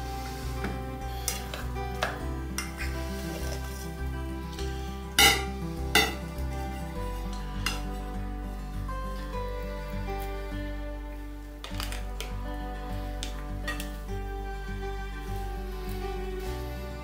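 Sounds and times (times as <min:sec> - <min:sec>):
paddle scraping metal pot: 0:00.0 - 0:08.1
soft background music: 0:00.0 - 0:17.0.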